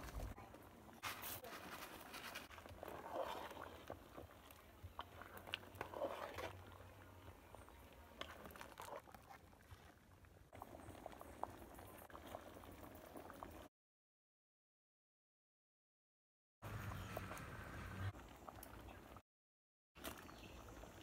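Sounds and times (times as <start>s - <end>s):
metal spoon stirring: 1.1s - 9.4s
soup bubbling in a pot: 1.9s - 13.7s, 16.7s - 19.2s, 20.0s - 21.0s.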